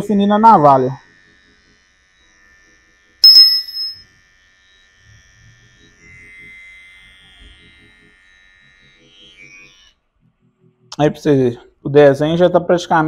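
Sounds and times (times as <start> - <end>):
hair trimmer whining: 0.3 - 3.2, 4.1 - 10.0
bell ding: 3.2 - 4.0.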